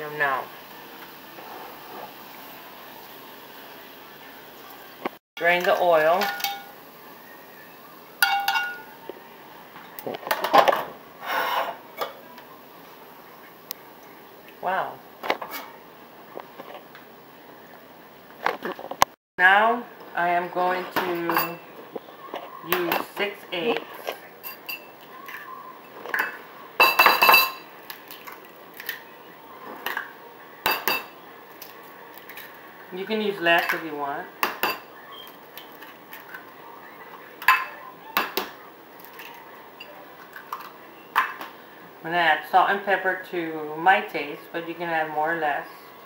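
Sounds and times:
metal tongs clanking on colander: 5.4s - 6.8s, 8.2s - 8.9s, 21.1s - 21.6s.

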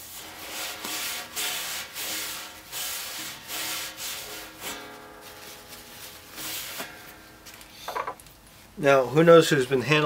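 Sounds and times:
towel rubbing on steel pot: 0.0s - 6.9s.

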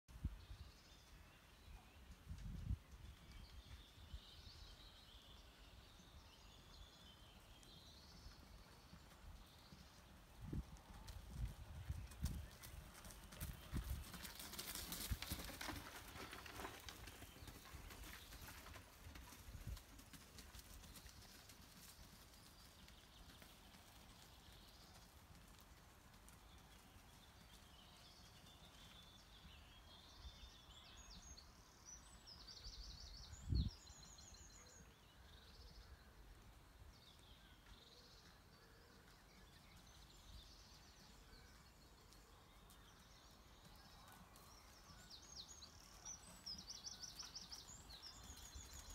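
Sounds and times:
horse hoofbeats on sand: 7.8s - 29.6s.

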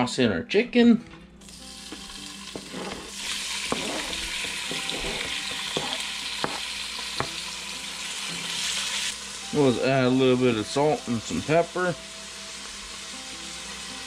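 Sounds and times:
meat sizzling in hot oil: 1.4s - 14.0s
wooden spoon knocking: 3.7s - 6.6s.

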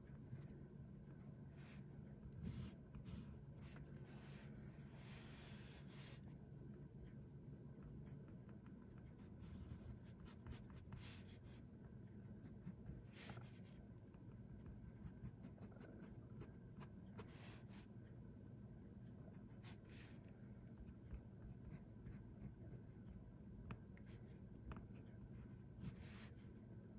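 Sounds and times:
pen nib scratching on paper: 7.8s - 17.9s, 18.8s - 26.5s.

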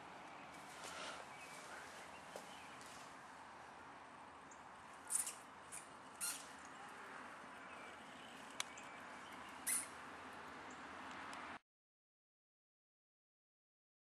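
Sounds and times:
mouse squeaking: 5.1s - 6.5s, 9.6s - 10.0s.

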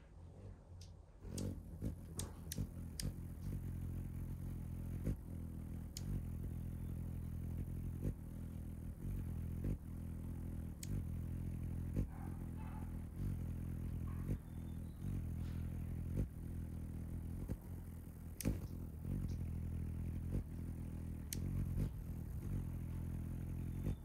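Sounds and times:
sharp clicks: 0.8s - 3.6s, 5.9s - 6.4s, 18.3s - 19.5s, 21.2s - 22.1s
hummingbird wings humming: 0.8s - 24.0s.

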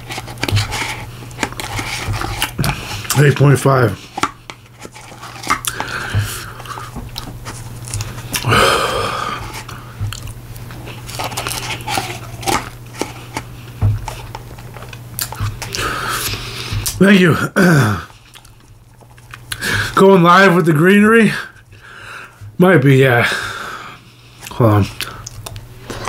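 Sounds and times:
low steady hum: 0.0s - 26.0s
breathy sound: 8.4s - 10.0s
wet chewing and mouth clicks: 9.7s - 12.8s, 18.2s - 19.6s, 24.4s - 26.0s.

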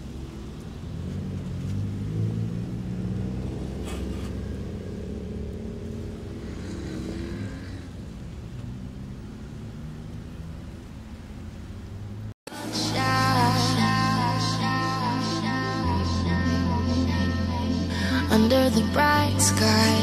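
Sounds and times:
car engines accelerating past: 0.0s - 13.6s.

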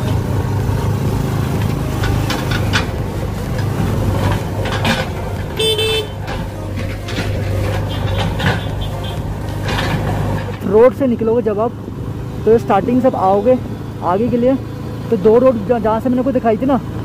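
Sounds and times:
scooter engine and road rumble: 0.0s - 17.0s
horn beep: 5.6s - 6.3s.

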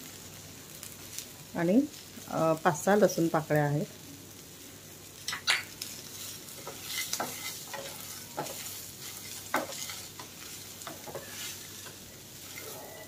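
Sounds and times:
oil sizzling: 0.0s - 13.0s
wooden spatula scraping a pan: 6.0s - 13.0s.

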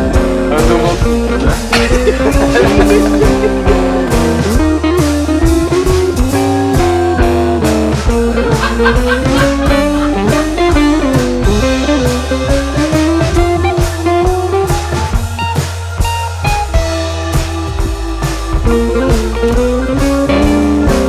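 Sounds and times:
blues music with guitar: 0.0s - 21.0s.

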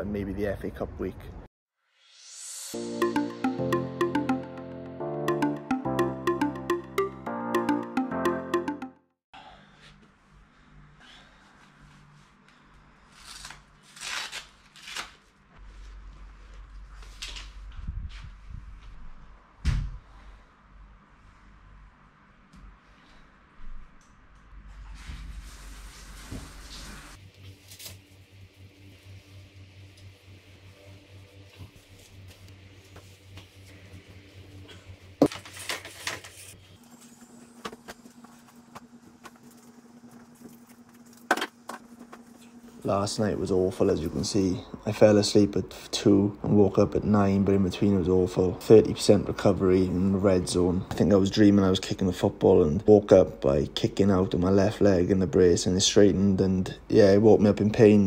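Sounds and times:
velcro straps rasping: 13.1s - 15.3s.

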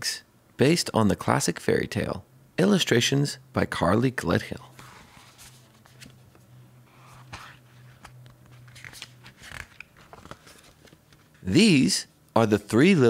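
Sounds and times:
book pages turning: 4.7s - 11.5s.

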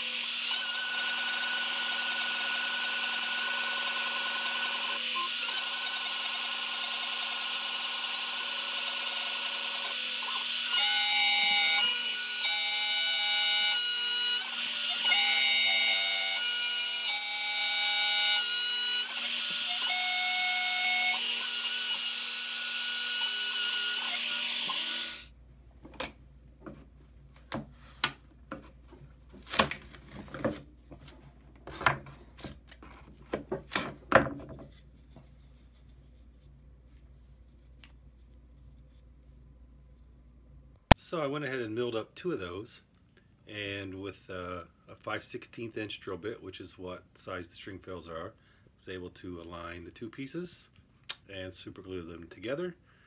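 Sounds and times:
router spindle whine: 0.0s - 25.3s.

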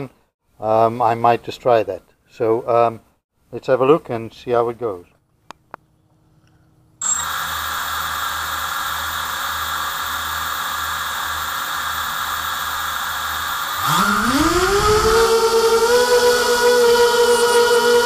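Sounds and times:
quadcopter motors hissing: 7.0s - 18.0s.

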